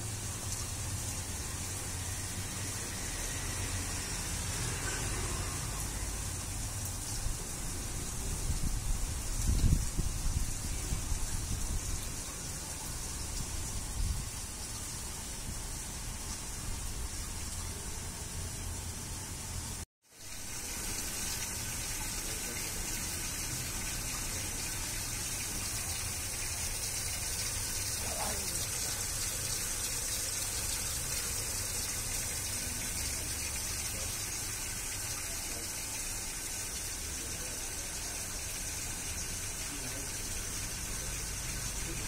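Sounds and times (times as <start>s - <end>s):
fountain water splashing: 20.2s - 42.0s.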